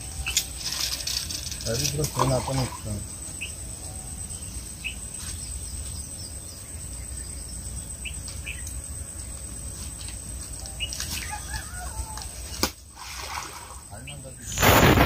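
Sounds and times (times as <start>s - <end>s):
high-pitched insect drone: 0.0s - 14.6s
wind rumble on microphone: 14.4s - 15.0s.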